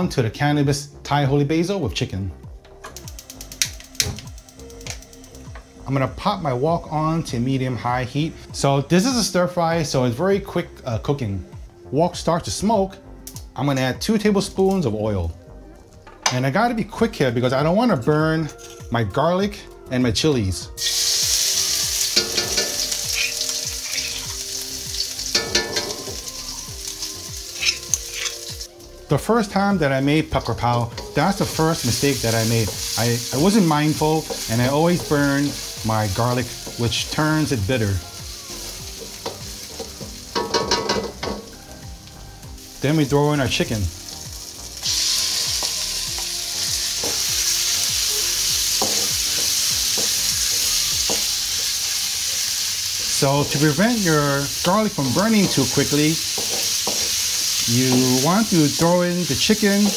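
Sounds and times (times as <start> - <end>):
garlic sizzling in oil: 2.9 - 6.6, 20.8 - 59.9
oil spattering crackles: 20.8 - 29.6.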